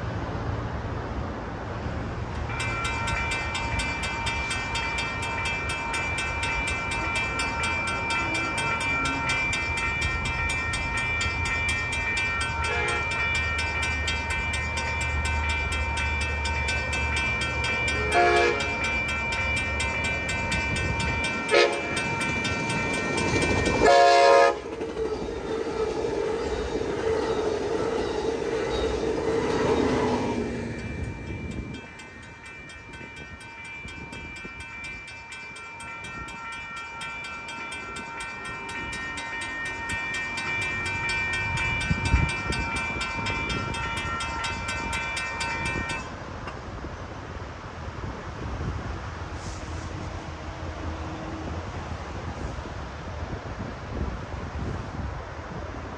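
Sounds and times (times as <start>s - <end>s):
train hum: 0.0s - 55.9s
railroad crossing bell ringing: 2.4s - 46.6s
train horn blasts: 12.6s - 13.3s, 17.9s - 18.8s, 21.4s - 22.1s, 23.8s - 24.8s.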